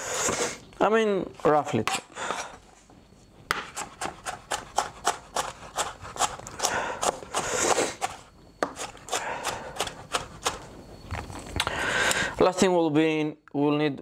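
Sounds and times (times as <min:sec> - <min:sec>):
knife chopping on cutting board: 0:03.5 - 0:06.4.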